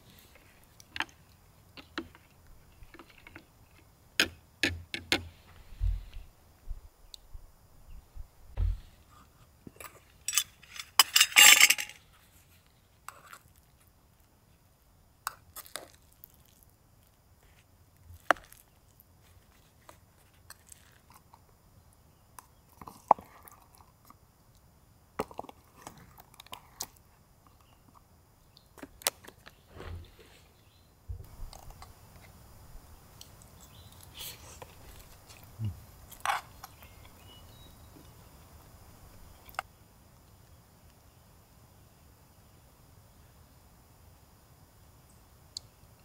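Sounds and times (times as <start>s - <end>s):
small objects clicking and clinking: 10.2s - 12.0s.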